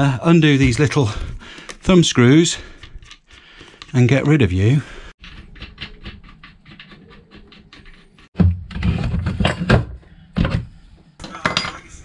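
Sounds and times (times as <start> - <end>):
knocks and clatter of parts: 5.2 - 11.9.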